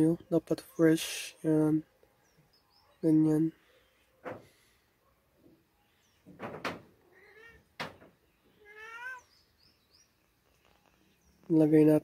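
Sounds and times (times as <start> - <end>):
cat meowing: 7.1 - 7.7, 8.6 - 9.3.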